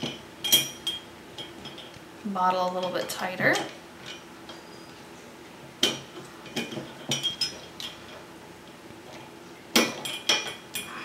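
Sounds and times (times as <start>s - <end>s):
metal clinking against glass bottle: 0.0s - 1.9s, 6.6s - 8.1s.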